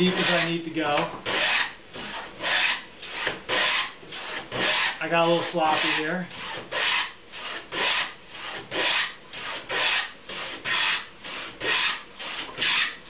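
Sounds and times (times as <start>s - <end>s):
plane rasping through wood: 0.0s - 13.0s.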